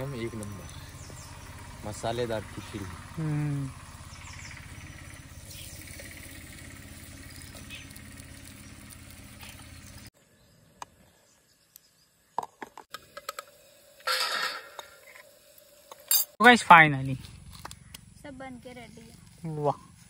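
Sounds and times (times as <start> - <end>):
low engine-like drone: 0.0 - 10.2.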